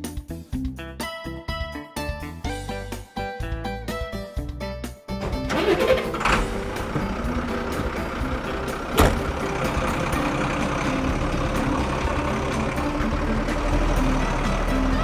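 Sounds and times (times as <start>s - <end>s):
truck engine running: 5.1s - 15.0s.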